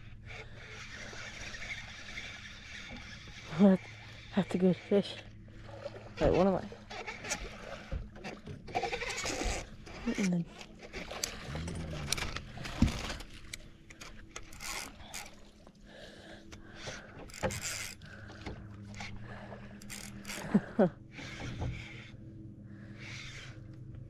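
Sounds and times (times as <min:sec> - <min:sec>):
steady low hum: 0:00.0 - 0:24.0
fishing reel being cranked: 0:00.1 - 0:05.3, 0:06.1 - 0:15.5, 0:16.6 - 0:18.2, 0:18.9 - 0:22.2, 0:22.9 - 0:23.6
short squeaks: 0:08.2 - 0:10.2.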